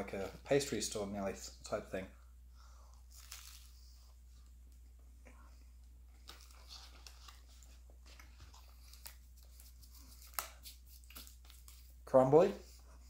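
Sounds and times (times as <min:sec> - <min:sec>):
pastry crackling while chewed: 0:03.0 - 0:03.9.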